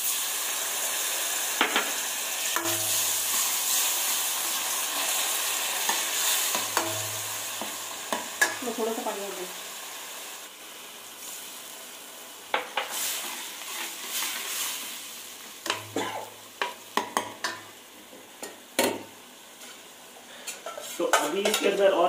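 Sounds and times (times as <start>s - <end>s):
sauce sizzling in a pan: 0.0s - 22.0s
ladle scraping a pan: 20.4s - 21.8s.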